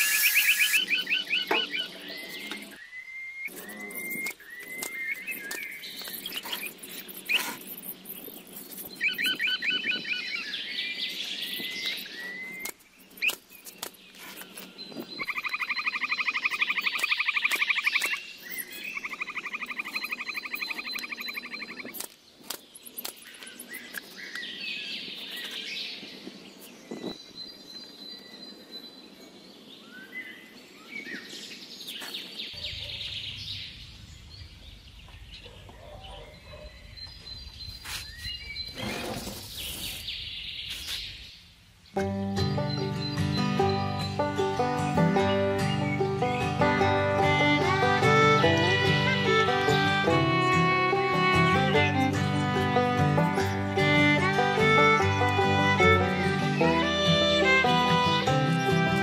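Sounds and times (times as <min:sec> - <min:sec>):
buzzing bird trill: 0:00.0 - 0:10.4
birds chirping: 0:00.0 - 0:59.0.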